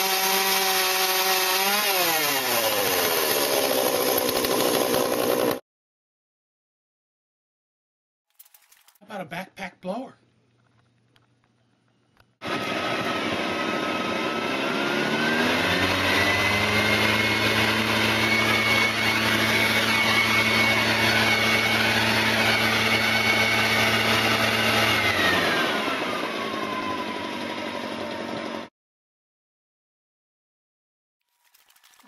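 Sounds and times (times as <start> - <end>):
leaf blower engine revving: 0.0 - 5.6, 12.4 - 28.7.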